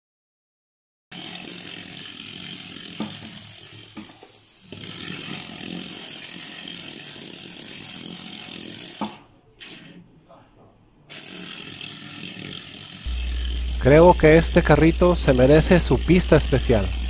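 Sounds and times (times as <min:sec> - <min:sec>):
toy car gears whirring: 0:01.1 - 0:10.2, 0:11.0 - 0:14.4.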